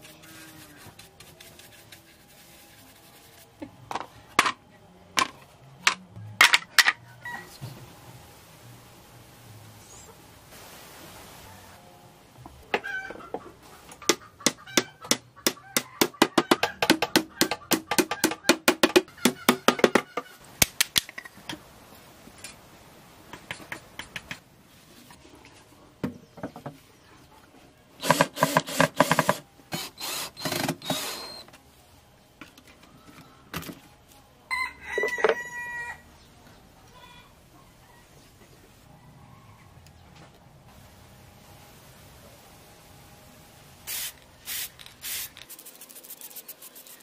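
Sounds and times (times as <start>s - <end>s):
rooster crowing: 7.0s - 7.6s, 34.5s - 36.1s, 38.9s - 39.8s
chicken clucking: 12.8s - 18.3s.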